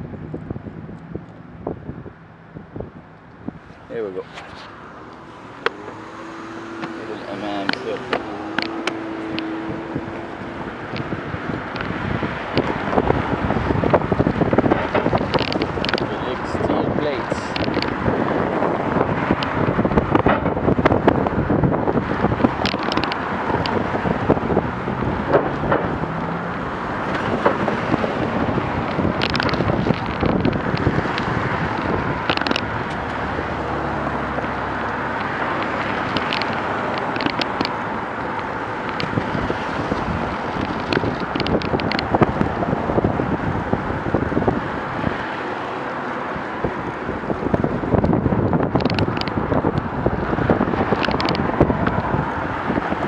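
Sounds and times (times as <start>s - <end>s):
car traffic on busy road: 0.0s - 53.0s
wind on microphone: 0.0s - 53.0s
sharp clicks and crackles: 6.8s - 18.1s, 22.1s - 33.4s, 34.4s - 42.7s, 47.2s - 53.0s.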